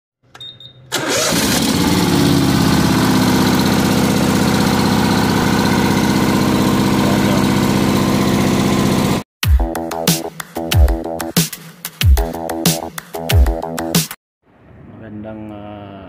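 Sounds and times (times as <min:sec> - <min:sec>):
mower engine starting and idling: 0:00.9 - 0:09.2.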